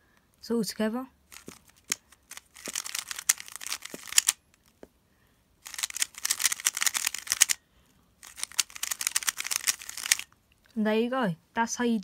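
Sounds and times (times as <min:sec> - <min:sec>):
puzzle cube clicking turns: 0:01.3 - 0:04.8, 0:05.6 - 0:07.6, 0:08.2 - 0:10.3.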